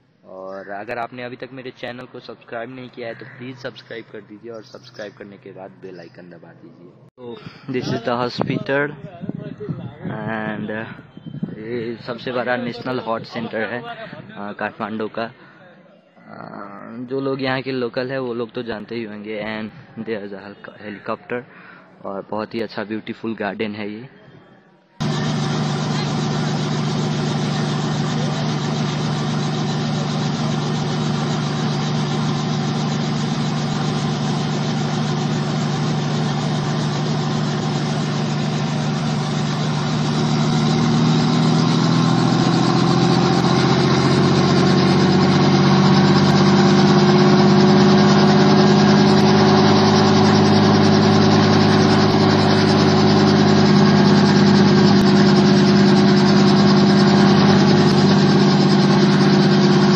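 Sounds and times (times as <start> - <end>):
helicopter engine and rotor: 25.0 - 45.2, 45.9 - 59.9.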